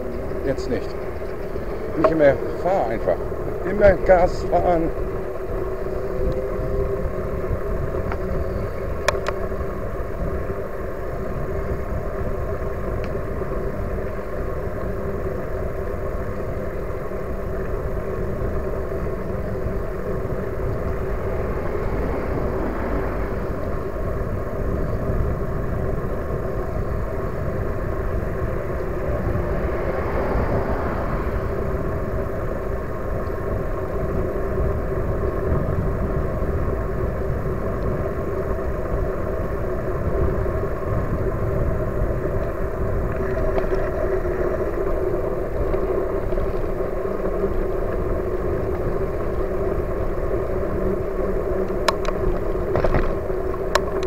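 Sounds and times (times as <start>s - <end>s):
steady hum: 0.0s - 54.0s
wind on microphone: 0.0s - 54.0s.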